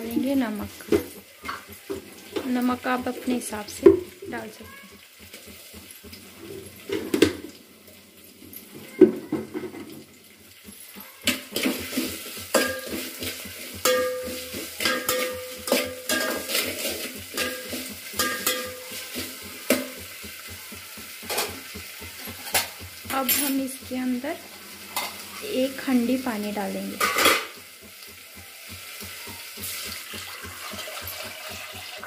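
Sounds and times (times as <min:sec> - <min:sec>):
faint sizzle of frying: 0:00.0 - 0:32.0
pot ringing: 0:10.6 - 0:32.0
spatula scraping metal pot: 0:11.2 - 0:28.2.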